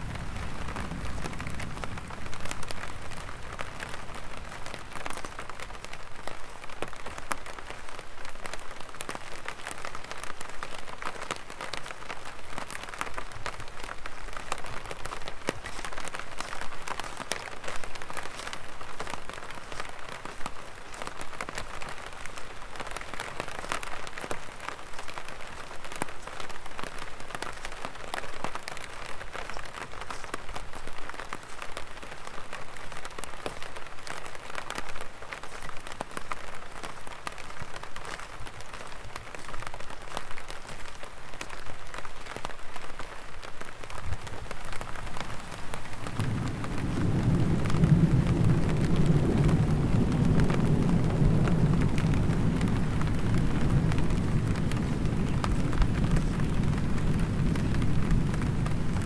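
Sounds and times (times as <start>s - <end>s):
thunder rumbling: 0.0s - 5.6s, 45.0s - 59.0s
rain on an umbrella: 0.0s - 59.0s.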